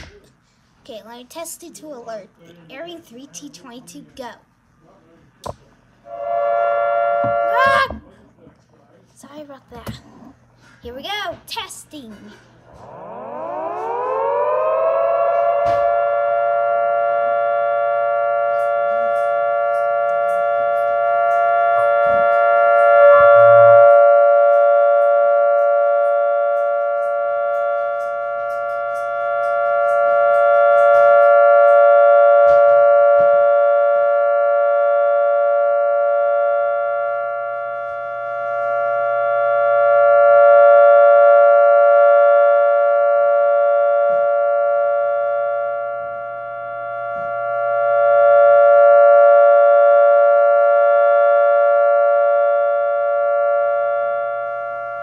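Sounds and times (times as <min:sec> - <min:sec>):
rotating three-tone siren: 0:06.0 - 0:08.1, 0:12.7 - 0:55.0.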